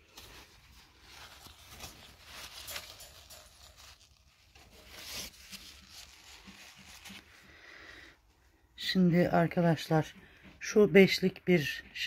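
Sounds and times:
paper tissue rustling: 0.0 - 8.6.

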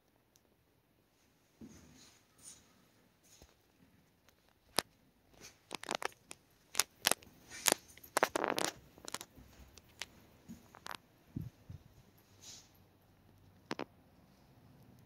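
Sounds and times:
sharp clicks and crackles: 4.2 - 11.0, 13.5 - 13.9.

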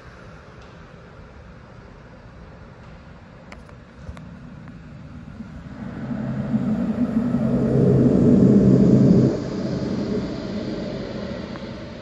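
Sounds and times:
jet engines droning: 3.8 - 12.0.

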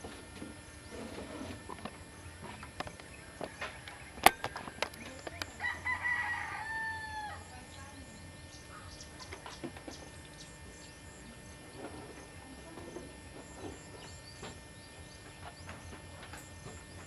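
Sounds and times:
rooster crowing: 3.1 - 7.6.

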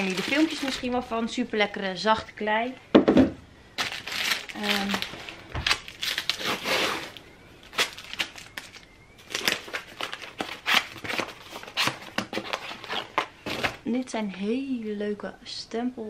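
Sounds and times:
packaging rustling and crinkling: 0.0 - 1.4, 3.8 - 13.8.

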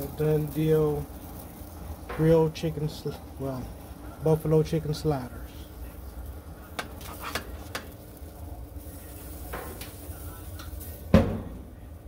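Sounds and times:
tongs scraping metal pan: 6.8 - 8.0.

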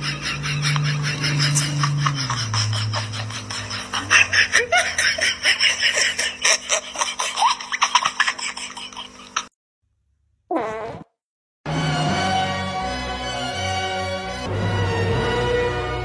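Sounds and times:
person laughing: 0.0 - 9.5
steady low hum: 0.0 - 9.5.

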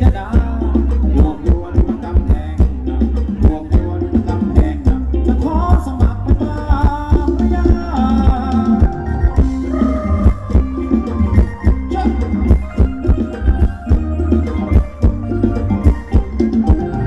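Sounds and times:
band playing dance music: 0.0 - 17.0.

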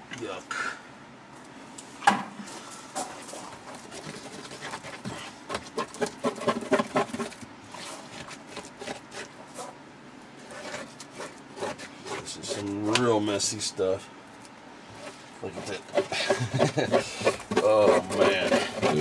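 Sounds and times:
stick scraping against wood: 3.5 - 9.8, 10.4 - 13.2, 14.9 - 19.0.

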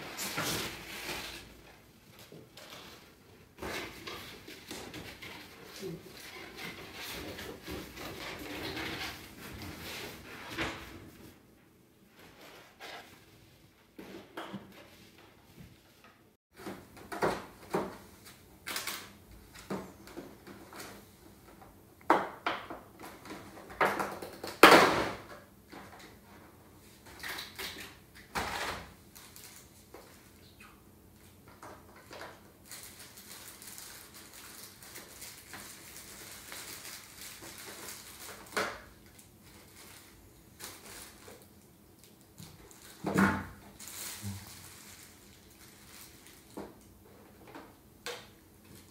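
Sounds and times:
plastic crinkling: 31.9 - 46.9.

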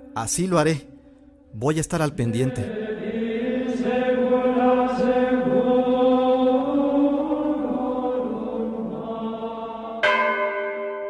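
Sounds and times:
chant-like vocal drone: 2.0 - 10.3.

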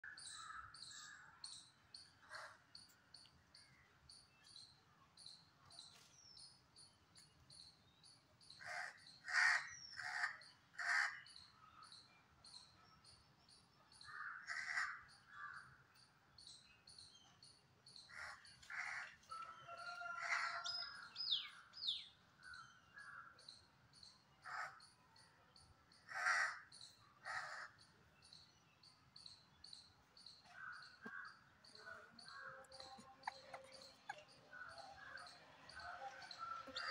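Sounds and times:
crow cawing: 8.6 - 11.2, 14.1 - 15.7, 18.1 - 20.6, 24.4 - 24.8, 26.1 - 27.8, 30.5 - 31.4.

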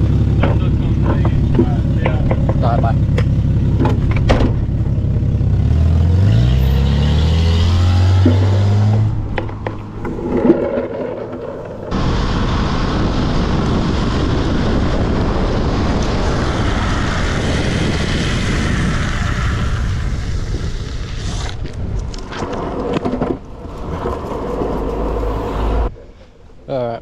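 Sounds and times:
wind buffeting microphone: 7.4 - 25.9.

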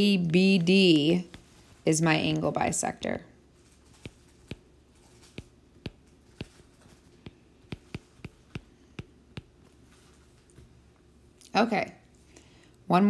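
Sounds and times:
stylus tapping on glass screen: 4.0 - 4.7, 5.3 - 6.6, 7.2 - 9.7.

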